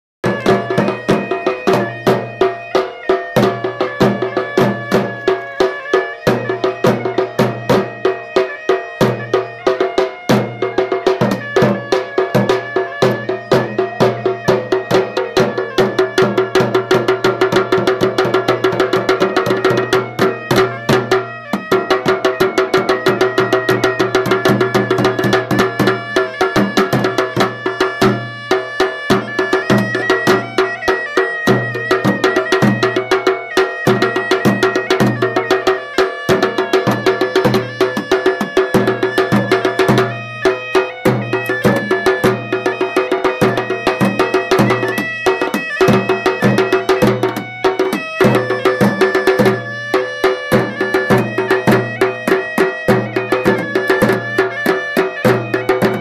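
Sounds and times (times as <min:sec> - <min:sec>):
fast drum strokes: 0:00.2 - 0:56.0
wind instrument droning melody: 0:00.2 - 0:56.0.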